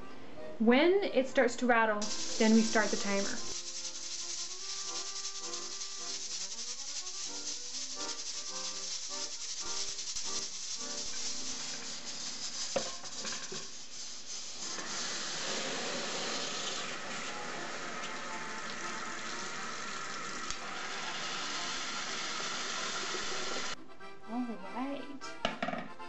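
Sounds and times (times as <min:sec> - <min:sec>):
background music: 0:00.0 - 0:13.8, 0:15.0 - 0:26.0
pressure cooker hissing and rattling: 0:02.0 - 0:23.8
tap water pouring on lid: 0:14.7 - 0:21.3.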